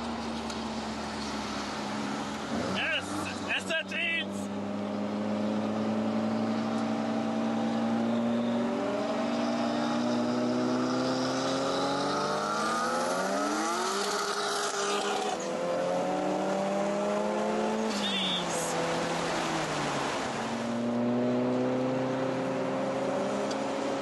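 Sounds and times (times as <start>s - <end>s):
car engine revving through gears: 4.5s - 18.1s, 18.7s - 24.0s.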